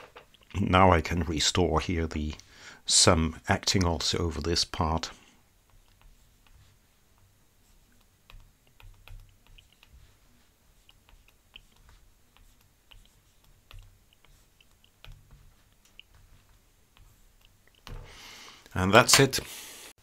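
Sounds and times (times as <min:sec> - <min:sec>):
stylus tapping on pen tablet: 0:05.6 - 0:10.2, 0:10.8 - 0:18.2.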